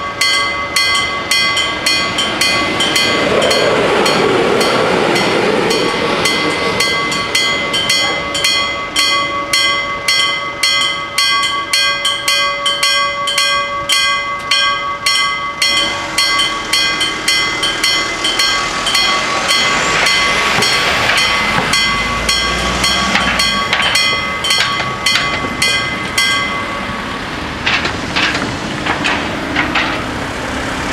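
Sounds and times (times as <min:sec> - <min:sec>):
level crossing bells clanging: 0:00.0 - 0:30.1
cars driving over crossing: 0:00.0 - 0:30.9
diesel railcar running: 0:00.0 - 0:30.9.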